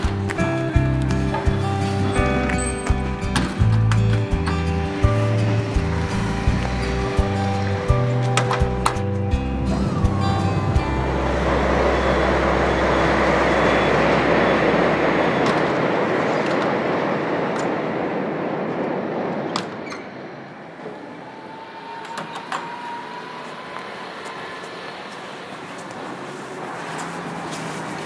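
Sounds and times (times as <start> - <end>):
vehicle passing: 4.2 - 19.5, 20.1 - 28.0
faint rising tone: 9.2 - 19.4, 20.0 - 27.4.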